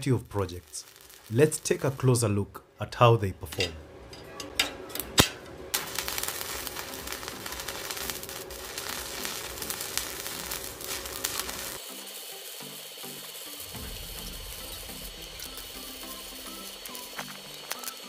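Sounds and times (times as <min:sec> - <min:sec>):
welding arc crackling: 0:00.0 - 0:02.1, 0:03.5 - 0:18.0
welding rod clicking on plate: 0:16.5 - 0:18.0.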